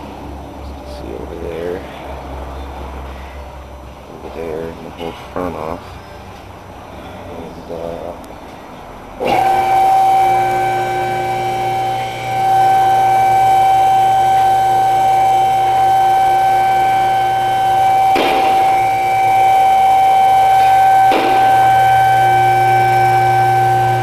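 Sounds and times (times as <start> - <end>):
high-pitched machine whine: 9.0 - 24.0.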